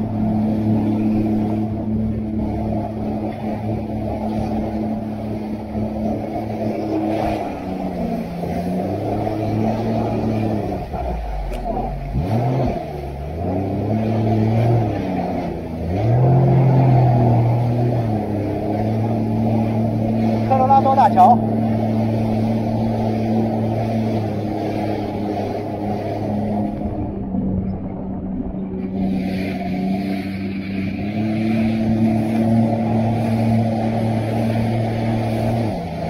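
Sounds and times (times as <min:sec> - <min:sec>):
jet ski engine revving: 0:00.0 - 0:36.0.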